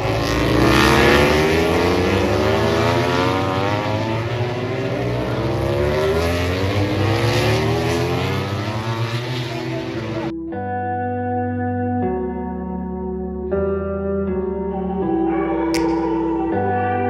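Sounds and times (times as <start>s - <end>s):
racing motorcycles accelerating: 0.0s - 10.3s.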